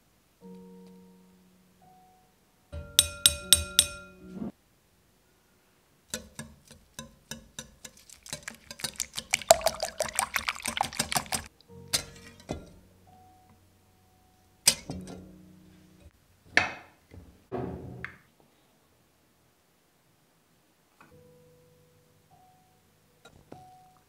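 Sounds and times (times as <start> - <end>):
soft music: 0.0 - 4.6, 7.5 - 16.4, 21.1 - 24.0
whisk clicking against glass bowl: 6.1 - 12.2.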